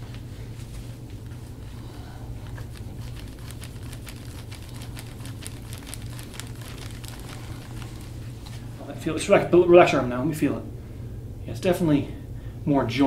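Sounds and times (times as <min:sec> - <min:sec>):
steady low hum: 0:00.0 - 0:13.0
massage roller clicking on skin: 0:02.4 - 0:08.6.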